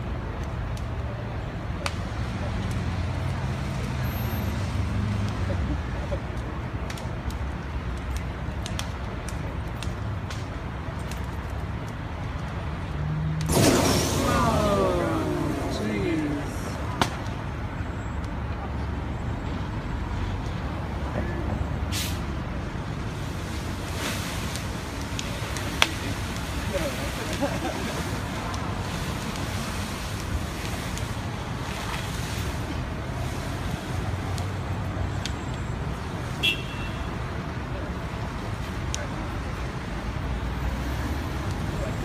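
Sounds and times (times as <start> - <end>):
vehicle engines rumbling: 0.0 - 42.0
short hiss: 13.5 - 15.7, 21.9 - 22.2.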